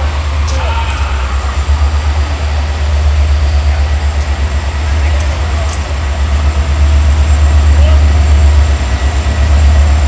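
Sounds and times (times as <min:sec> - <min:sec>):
diesel trains rumbling: 0:00.0 - 0:10.0.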